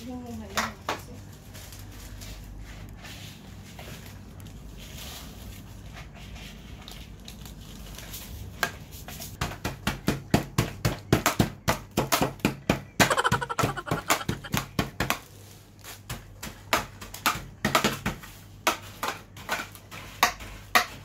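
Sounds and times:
rolling pin pounding cookies: 8.5s - 21.0s.

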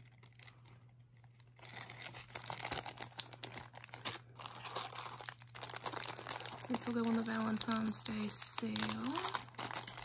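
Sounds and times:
plastic bags crinkling: 0.0s - 10.0s.

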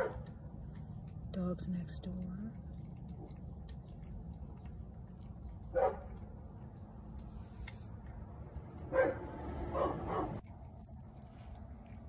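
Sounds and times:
dog barking: 0.0s - 0.3s, 5.6s - 6.3s, 8.9s - 10.4s.

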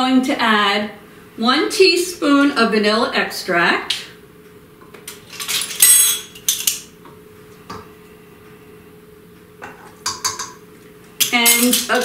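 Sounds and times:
measuring spoons clinking: 5.1s - 6.8s, 11.2s - 12.0s.

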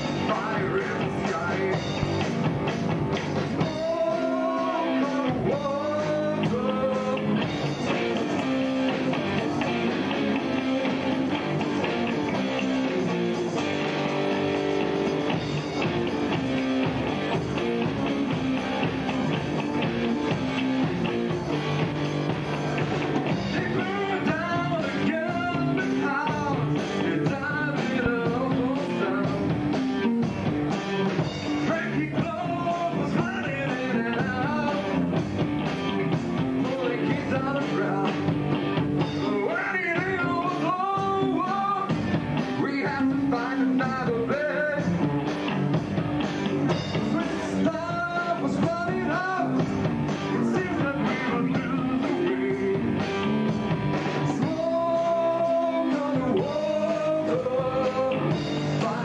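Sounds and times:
live rock band playing: 0.0s - 59.0s
man singing into microphone: 0.2s - 1.9s, 3.6s - 7.4s, 23.4s - 29.5s, 31.6s - 35.0s, 36.6s - 38.3s, 39.2s - 42.0s, 42.6s - 45.0s, 47.0s - 53.0s, 54.2s - 59.0s.

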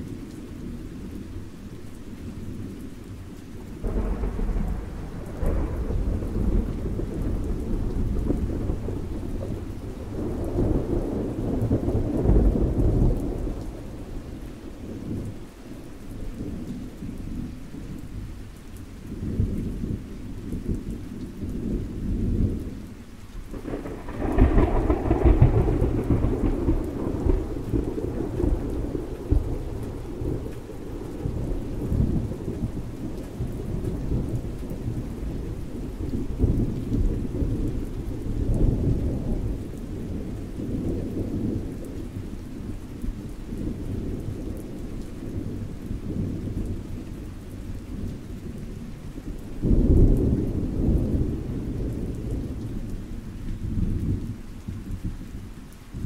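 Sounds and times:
rain falling: 0.0s - 56.0s
thunder rumbling: 3.8s - 15.4s, 23.5s - 52.9s.

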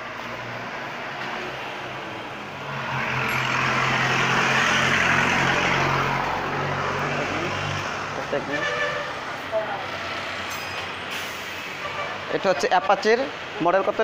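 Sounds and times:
vehicle passing by: 0.0s - 11.1s
engine hum: 0.0s - 11.7s.

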